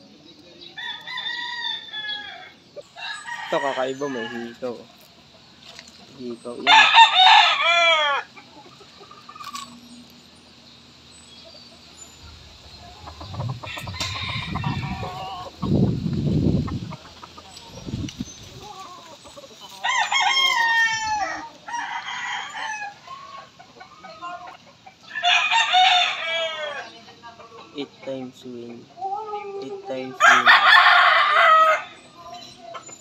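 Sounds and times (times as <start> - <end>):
rooster crowing: 0.8 - 4.8, 6.6 - 8.3, 12.8 - 15.6, 19.8 - 23.6, 25.1 - 27.0, 30.2 - 32.1
low rumbling noise: 12.1 - 17.1.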